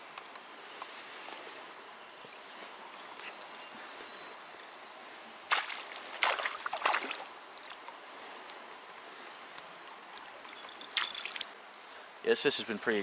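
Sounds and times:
creek water running: 5.4 - 8.7, 9.7 - 12.0.

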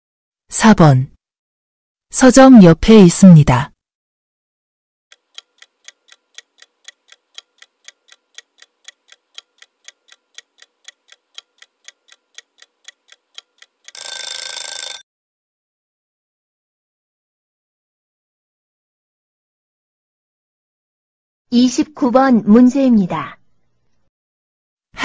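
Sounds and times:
clock ticking: 5.1 - 15.0
short alarm ring: 13.9 - 15.0.

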